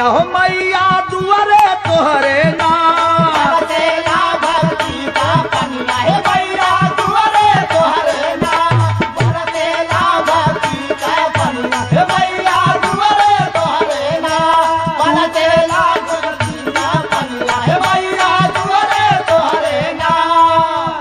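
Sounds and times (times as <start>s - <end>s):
devotional folk singing: 0.0s - 21.0s
jingling percussion: 0.0s - 21.0s
hand drum beat: 2.0s - 10.8s.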